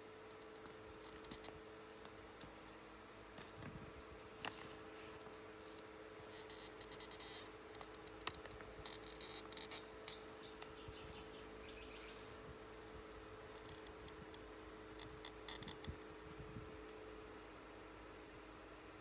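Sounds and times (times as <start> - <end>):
faint steady hum: 0.0 - 19.0
metal dividers ticking on paper: 0.3 - 2.2, 6.3 - 10.7.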